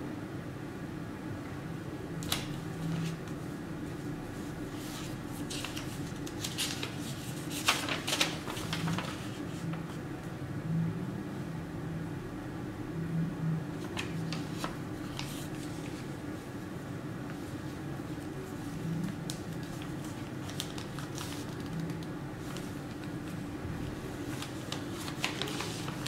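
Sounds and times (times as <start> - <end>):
paper rustling: 2.2 - 3.4, 4.4 - 10.0, 13.8 - 16.2, 17.3 - 26.0.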